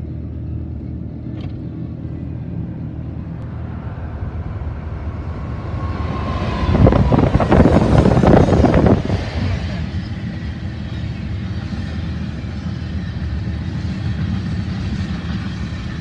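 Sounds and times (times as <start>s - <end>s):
car driving hum: 0.0s - 11.7s
freight train passing: 0.0s - 16.0s
wind buffeting: 2.8s - 16.0s.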